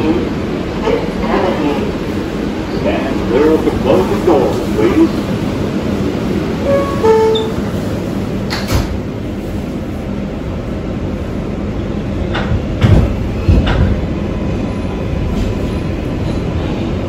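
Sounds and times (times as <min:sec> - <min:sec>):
subway train equipment hum: 0:00.0 - 0:17.0
train doors clicking shut: 0:06.6 - 0:07.8, 0:08.4 - 0:09.1, 0:12.2 - 0:14.0.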